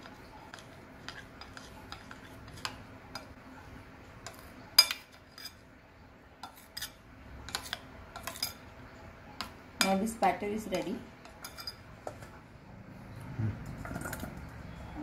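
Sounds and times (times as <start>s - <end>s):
spoon stirring batter: 0.0s - 5.8s, 6.4s - 8.8s, 9.4s - 12.4s
spoon clinking against bowl: 11.3s - 11.8s.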